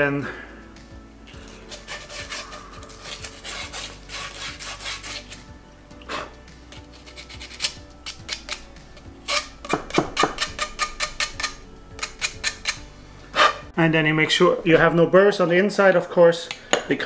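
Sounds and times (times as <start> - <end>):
sandpaper scrubbing copper pipe: 1.4 - 5.4, 6.7 - 8.6, 9.2 - 12.8.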